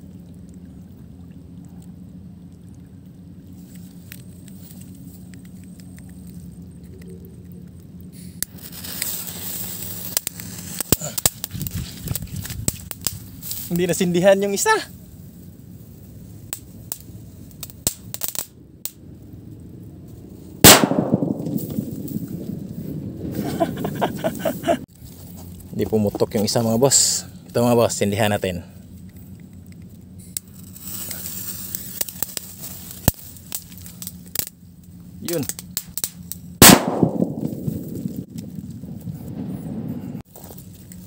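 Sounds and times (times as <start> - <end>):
faint crackles: 0.0 - 41.0
low background hum: 0.0 - 41.0
firecracker bang: 20.6 - 22.6, 36.6 - 38.3.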